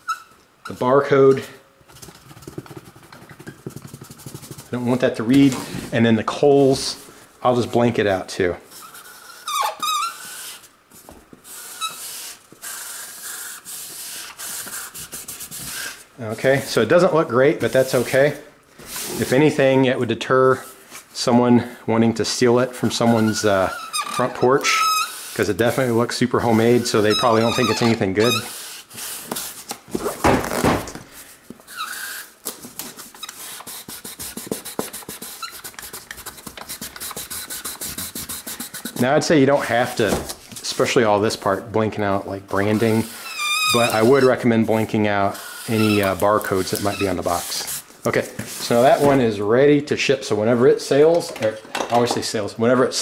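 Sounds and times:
marker squeaks: 0:00.0 - 0:00.9, 0:02.3 - 0:05.2, 0:08.7 - 0:16.9, 0:22.8 - 0:30.6, 0:31.7 - 0:40.2, 0:42.5 - 0:47.8
marker scribbling on cardboard: 0:02.0 - 0:05.2, 0:08.7 - 0:16.8, 0:24.8 - 0:29.5, 0:32.8 - 0:40.0, 0:42.6 - 0:47.8.

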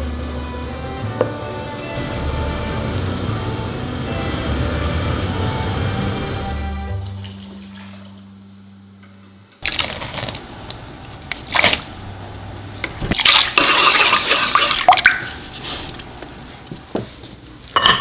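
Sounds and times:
water splashing in bowl: 0:09.6 - 0:16.2
water dripping: 0:10.6 - 0:16.4.

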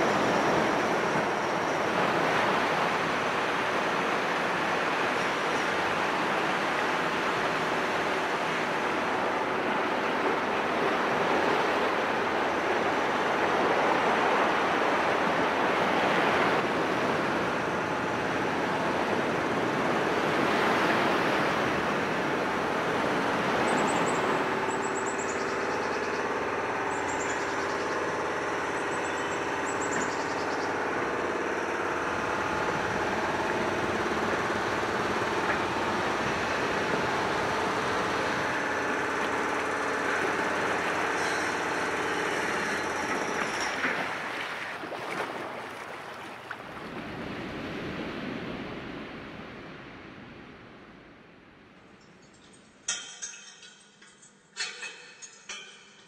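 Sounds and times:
steady rushing noise: 0:30.3 - 0:51.8.

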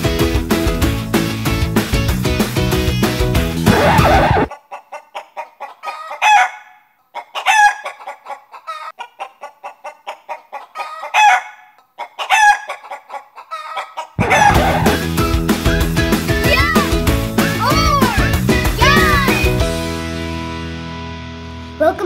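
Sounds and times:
music: 0:00.0 - 0:04.5, 0:14.2 - 0:22.0
chicken clucking: 0:03.7 - 0:15.0.

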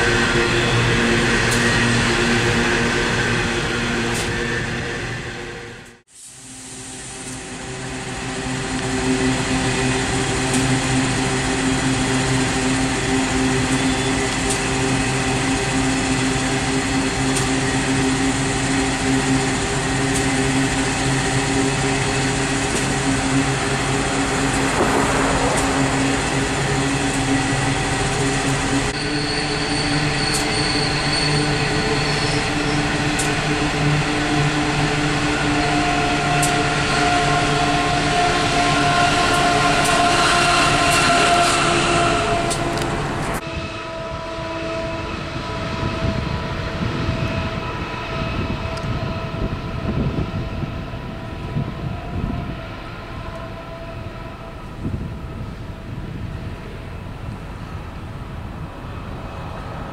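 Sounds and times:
locomotive engines droning: 0:00.0 - 0:59.9
high wheel squeal: 0:08.9 - 0:43.4.

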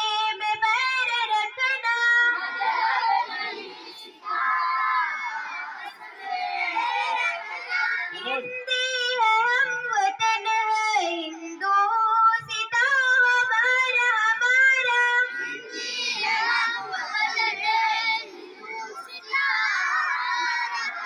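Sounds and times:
children singing: 0:01.5 - 0:08.5, 0:13.8 - 0:21.0
many voices at once: 0:02.3 - 0:08.7, 0:15.0 - 0:21.0.

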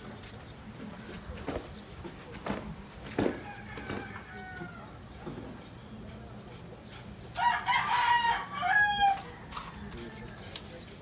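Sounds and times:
rooster crowing: 0:03.4 - 0:05.0, 0:07.4 - 0:10.3.

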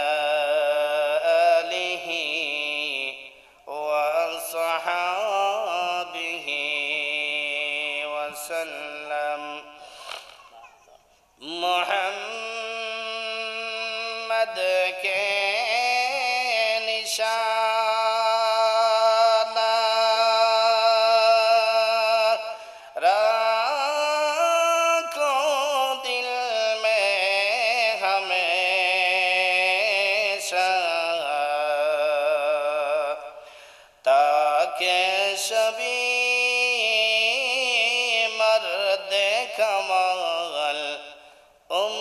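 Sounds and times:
man chanting into a microphone: 0:00.0 - 0:10.5, 0:11.4 - 0:42.0
man breathing: 0:09.8 - 0:10.5, 0:22.5 - 0:23.0, 0:33.3 - 0:34.0, 0:41.2 - 0:41.7.

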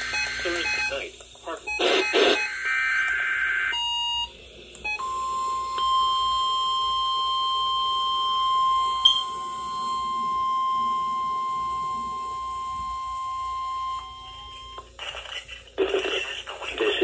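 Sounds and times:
steady high warning tone: 0:00.0 - 0:14.9.

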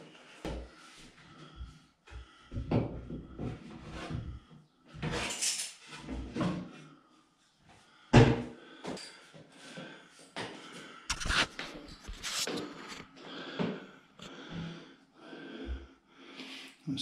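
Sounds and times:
brief scraping: 0:11.1 - 0:13.0.

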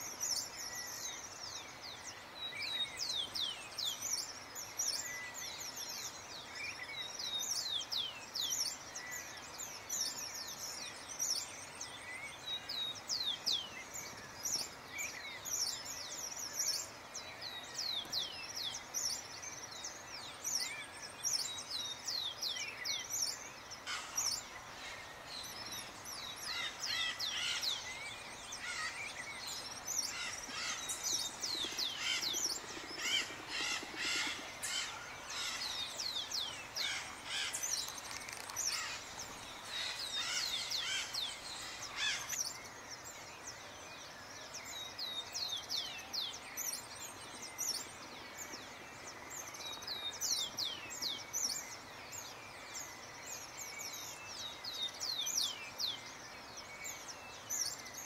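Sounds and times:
birds chirping: 0:00.0 - 0:58.0
steady background hiss: 0:00.0 - 0:58.0
lower rough bird calls: 0:23.8 - 0:42.6.

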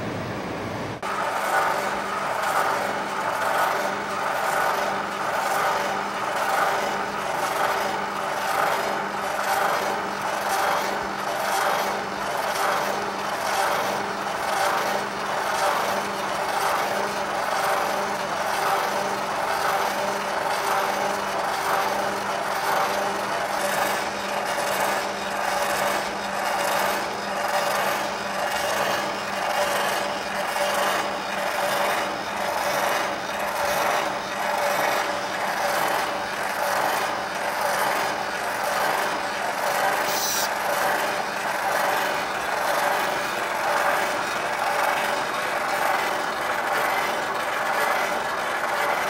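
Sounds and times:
motorised machine whirring: 0:00.0 - 0:49.0
rasping rubbing sound: 0:40.0 - 0:40.5.

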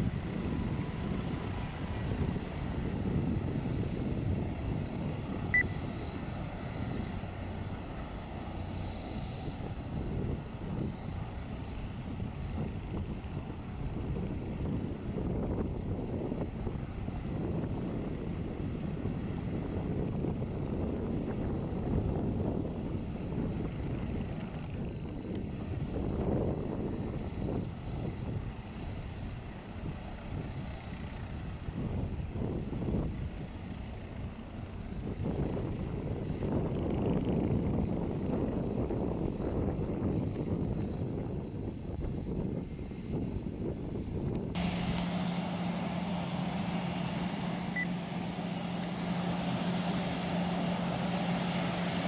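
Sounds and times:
helicopter hovering: 0:00.0 - 0:52.0
short high chirp: 0:47.7 - 0:48.0.

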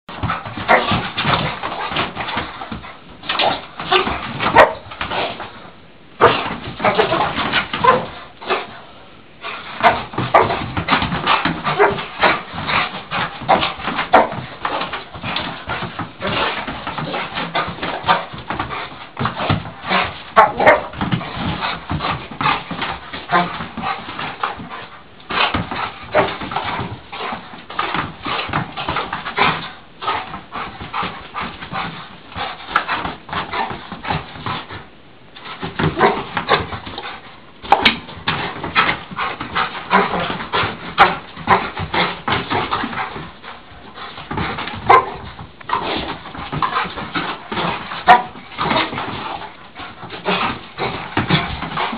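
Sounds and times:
dog barking: 0:03.9 - 0:04.9, 0:20.4 - 0:20.9, 0:44.9 - 0:45.2.

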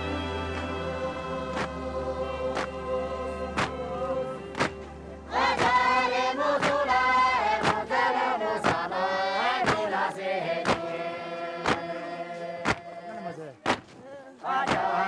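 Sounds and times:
group of workers singing: 0:00.0 - 0:15.0.

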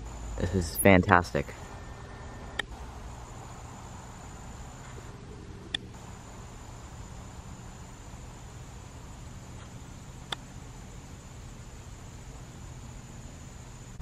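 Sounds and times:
high insect note: 0:00.0 - 0:14.0.

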